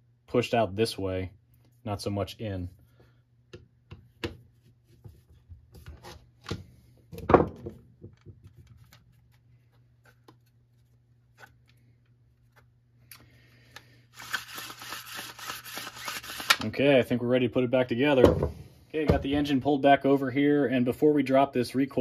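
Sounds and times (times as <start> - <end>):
plastic parts handled on workbench: 3.9 - 12.7.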